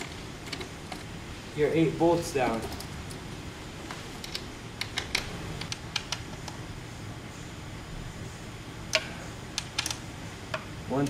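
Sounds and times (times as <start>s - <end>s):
hex key and bolts clicking: 0.0s - 1.1s, 4.2s - 6.6s, 8.9s - 11.0s.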